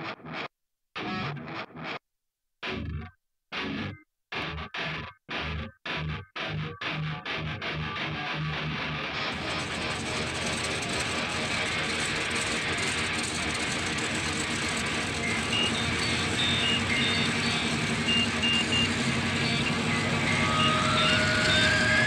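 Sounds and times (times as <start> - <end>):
light aircraft engine and propeller: 9.4 - 22.0
short high beeps: 15.2 - 22.0.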